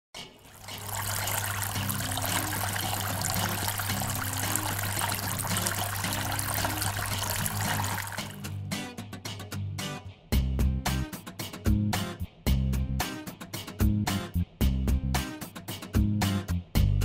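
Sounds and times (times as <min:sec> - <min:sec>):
low background music: 0:00.2 - 0:17.0
fountain water trickling: 0:00.4 - 0:08.5.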